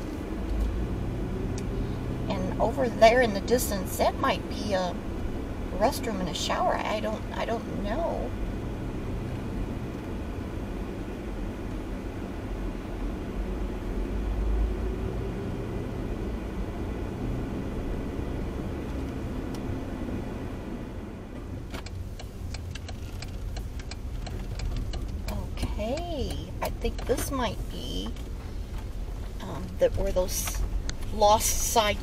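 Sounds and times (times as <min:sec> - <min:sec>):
vehicle engine and tyres rumbling: 0:00.0 - 0:32.0
sharp ticking clicks: 0:21.7 - 0:27.4.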